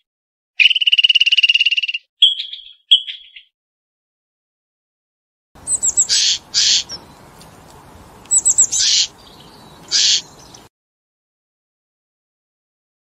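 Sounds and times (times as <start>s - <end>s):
songbird singing: 0.6s - 3.5s, 5.6s - 10.7s.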